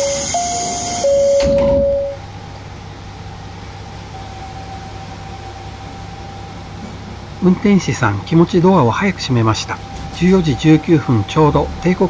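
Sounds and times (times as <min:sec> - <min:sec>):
sliding door thud: 0:00.0 - 0:02.1
two-note falling door chime: 0:00.0 - 0:02.2
diesel engine idling: 0:00.0 - 0:12.0.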